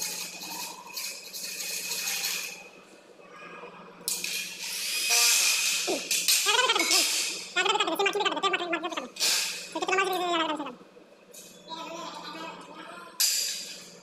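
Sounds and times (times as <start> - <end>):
metal frames clinking and scraping: 0.0 - 2.6.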